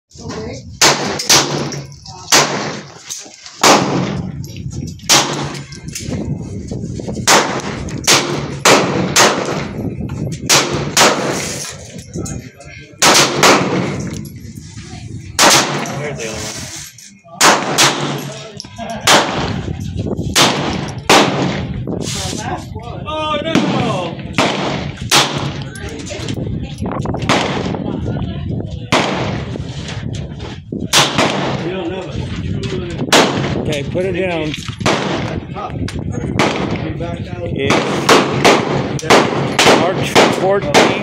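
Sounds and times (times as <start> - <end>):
gunshots: 0.8 - 3.0, 3.6 - 4.4, 5.0 - 5.7, 7.2 - 9.8, 10.5 - 11.8, 13.0 - 14.1, 15.4 - 16.3, 17.3 - 19.7, 20.3 - 21.8, 23.5 - 25.6, 27.2 - 27.8, 28.9 - 29.6, 30.9 - 31.8, 33.1 - 33.7, 34.8 - 35.4, 36.4 - 36.9, 37.6 - 41.0.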